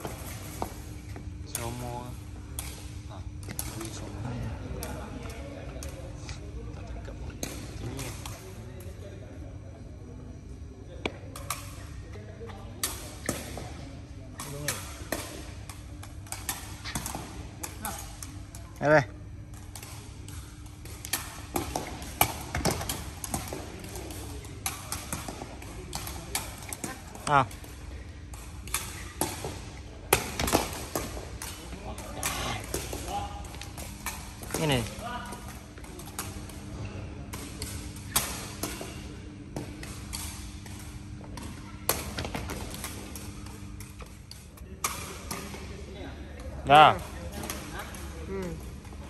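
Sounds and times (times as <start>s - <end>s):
steady low hum: 0.0s - 49.0s
balls being struck: 19.6s - 45.7s.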